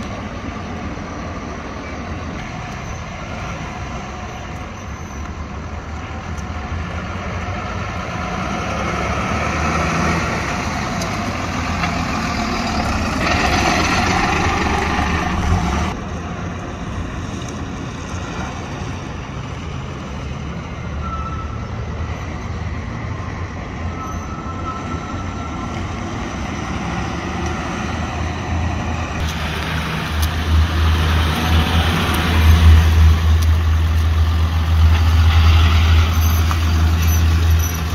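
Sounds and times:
pickup truck engine: 0:05.6 - 0:17.0, 0:28.3 - 0:37.9.

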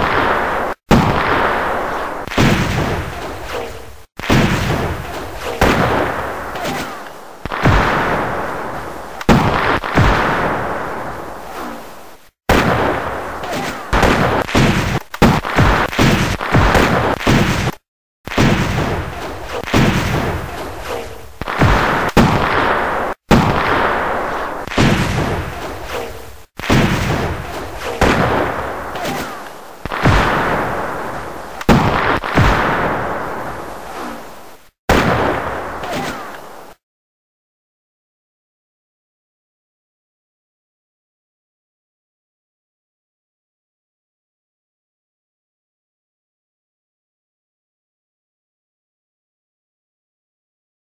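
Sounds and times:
artillery booms with rumble: 0:00.0 - 0:06.6, 0:07.4 - 0:11.2, 0:12.5 - 0:26.0, 0:26.6 - 0:29.0, 0:29.8 - 0:33.7, 0:34.9 - 0:35.8
rifle shots echoing: 0:00.0 - 0:11.0, 0:12.5 - 0:33.5.

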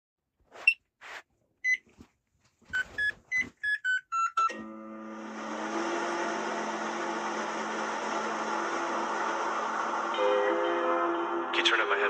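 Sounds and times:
microwave oven humming: 0:04.5 - 0:10.1.

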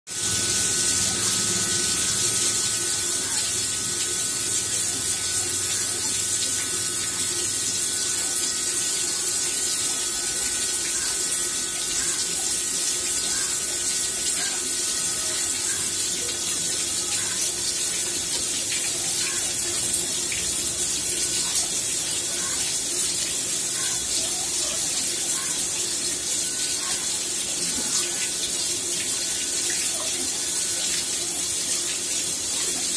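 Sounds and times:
water jets splashing on tiles: 0:00.1 - 0:32.9.

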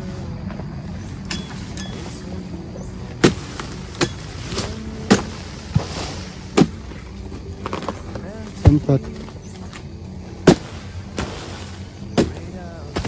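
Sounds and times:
blade chopping into palm frond: 0:03.2 - 0:06.9, 0:10.4 - 0:13.0.

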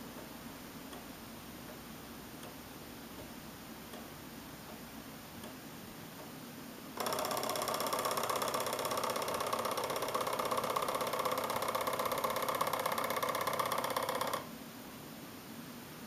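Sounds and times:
stepper motors buzzing whine: 0:07.0 - 0:14.4.

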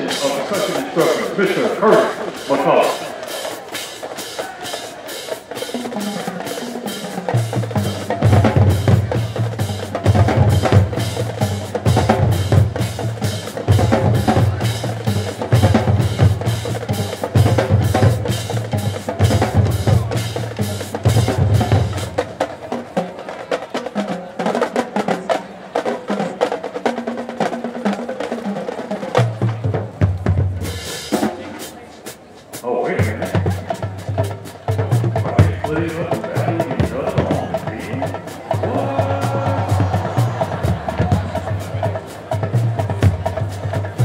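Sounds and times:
snare and tenor drums cadence: 0:00.0 - 0:44.0
bass drums: 0:07.2 - 0:22.4, 0:33.0 - 0:44.0.

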